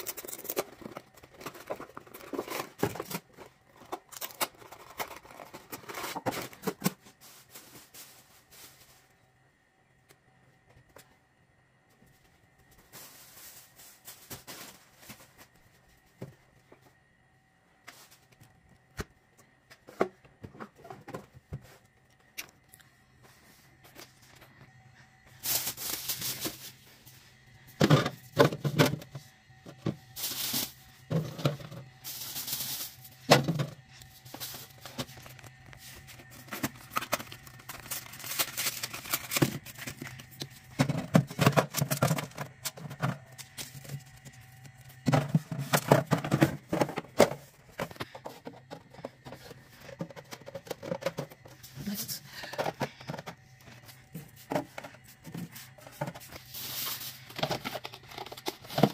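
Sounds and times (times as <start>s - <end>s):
plastic bottles clattering: 0.0s - 8.2s, 27.8s - 35.5s, 36.3s - 44.3s, 44.9s - 58.9s
steady low hum: 0.0s - 58.9s.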